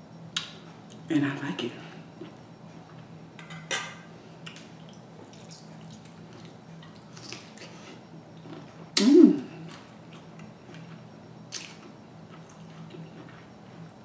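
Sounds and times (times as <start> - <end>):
chewing: 5.2 - 8.8, 11.6 - 13.9.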